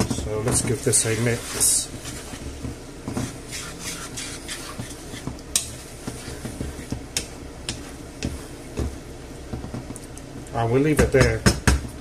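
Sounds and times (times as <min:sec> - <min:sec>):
spatula stirring sauce in pan: 0:00.6 - 0:07.0.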